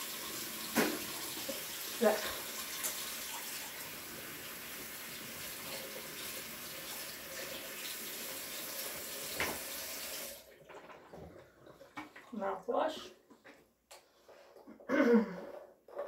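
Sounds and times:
faucet running into sink: 0.0s - 11.3s.

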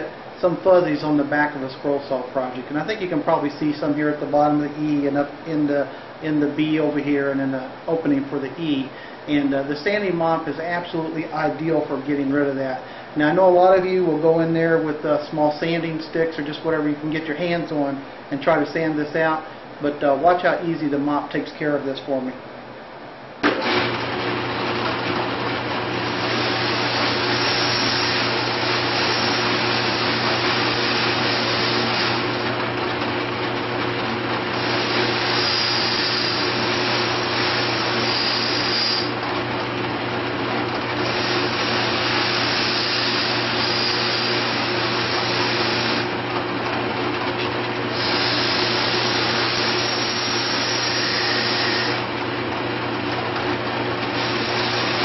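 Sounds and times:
drill press motor hum: 23.4s - 55.0s.

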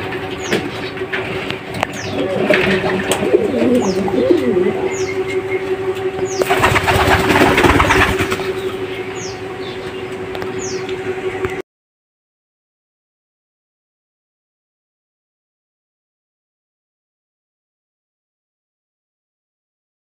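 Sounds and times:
pigeons cooing: 0.3s - 10.9s
wings flapping: 6.4s - 8.7s.

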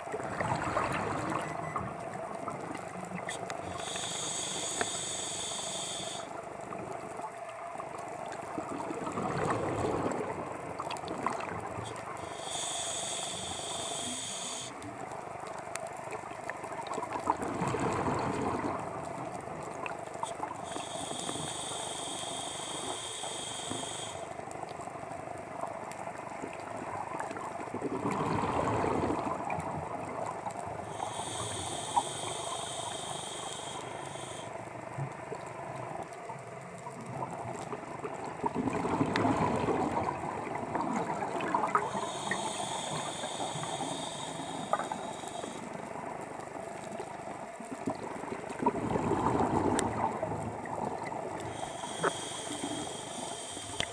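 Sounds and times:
hissing regulator inhale: 3.2s - 6.4s, 11.8s - 14.9s, 20.2s - 24.4s, 30.8s - 34.6s, 41.4s - 46.2s, 51.4s - 53.9s.

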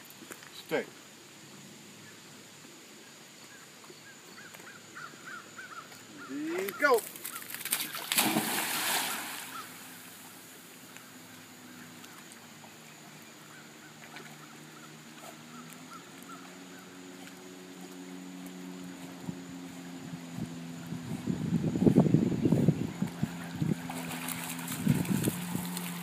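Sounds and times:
dog splashing into water: 7.0s - 10.1s, 23.8s - 26.0s
low engine hum: 8.0s - 26.0s.

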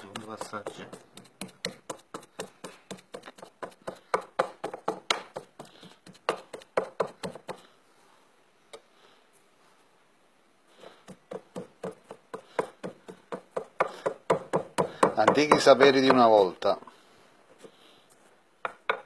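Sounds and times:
pestle pounding in a mortar: 0.0s - 7.6s, 11.0s - 16.4s.

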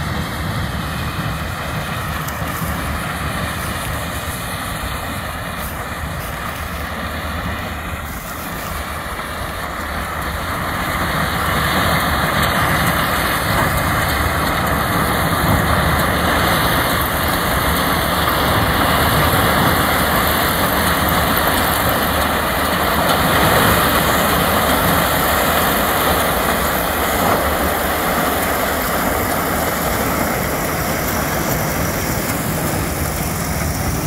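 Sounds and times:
combine harvester running: 0.0s - 34.0s.

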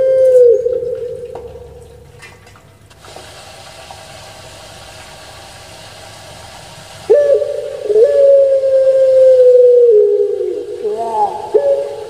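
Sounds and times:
dove cooing: 0.0s - 1.8s, 7.1s - 12.0s
steady low hiss: 0.0s - 12.0s.

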